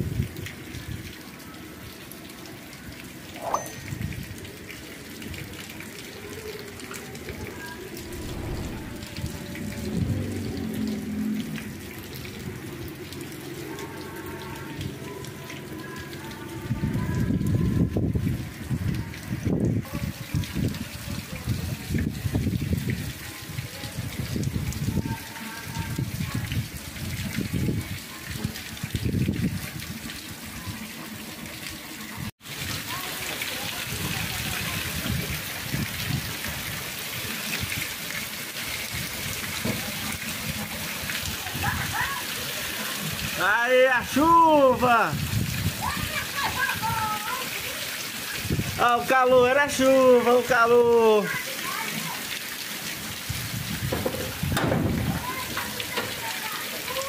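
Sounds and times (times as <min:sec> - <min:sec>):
steady rain on street and roofs: 0:00.0 - 0:57.0
water drops splashing: 0:03.2 - 0:06.8
low rumbles: 0:07.2 - 0:13.6.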